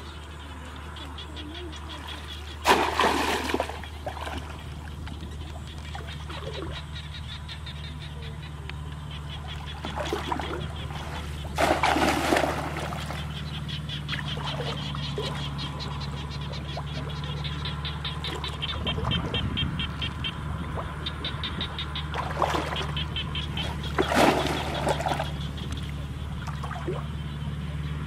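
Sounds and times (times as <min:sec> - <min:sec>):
frogs chirping: 0:00.0 - 0:28.0
pond water sloshing: 0:00.0 - 0:28.0
steady low hum: 0:00.0 - 0:28.0
water splash: 0:02.6 - 0:04.6, 0:09.9 - 0:13.3, 0:22.1 - 0:23.0, 0:23.6 - 0:25.4.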